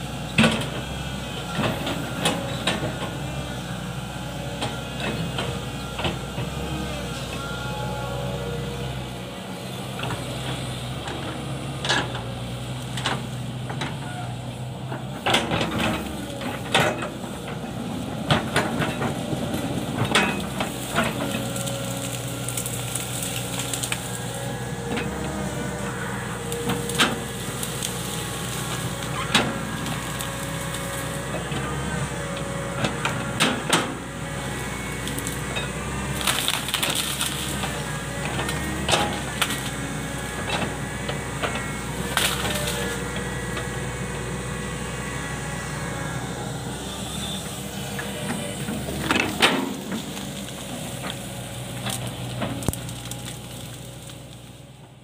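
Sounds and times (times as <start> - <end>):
excavator diesel engine running: 0.0 - 55.0
branches cracking and snapping: 19.0 - 33.9, 34.5 - 44.1, 47.4 - 54.7.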